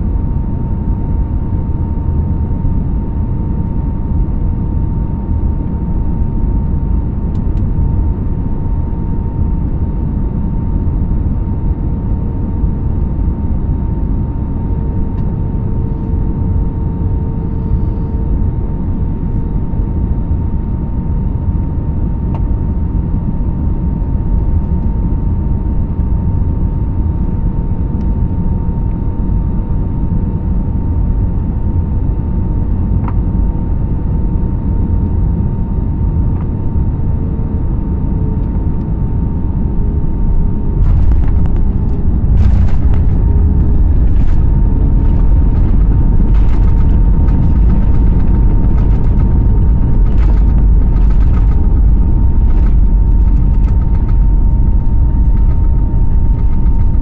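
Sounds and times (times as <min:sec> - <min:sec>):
aircraft engine and airflow noise: 0:00.0 - 0:57.0
runway rumble with rattles: 0:39.4 - 0:57.0.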